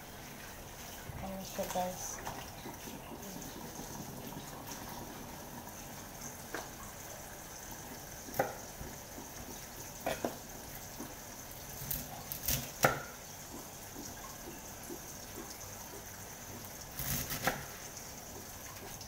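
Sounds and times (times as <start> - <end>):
knife cutting on wooden board: 17.0 - 17.7.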